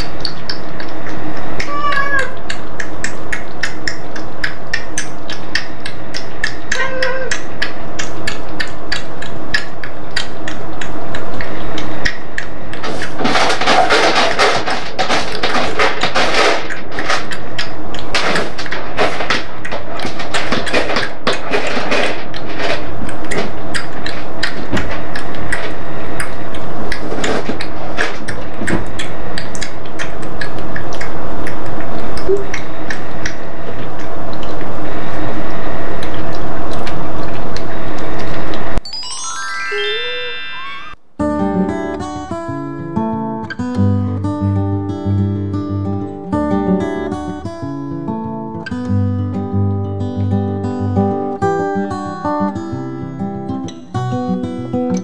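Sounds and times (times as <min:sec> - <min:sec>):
kitten suckling wet clicks: 0:00.0 - 0:13.1, 0:22.3 - 0:38.7.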